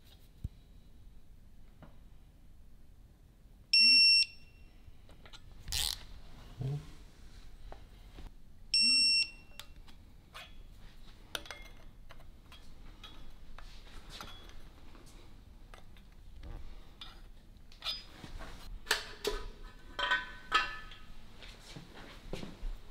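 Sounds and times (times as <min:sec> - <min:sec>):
light knocks and metal clinks: 0:10.3 - 0:15.0, 0:19.2 - 0:21.2.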